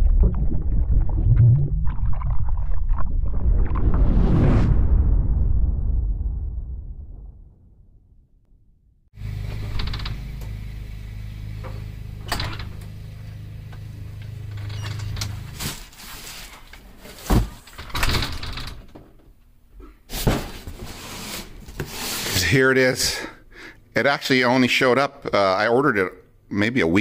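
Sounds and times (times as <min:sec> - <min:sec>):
low hum: 0:00.0 - 0:16.1.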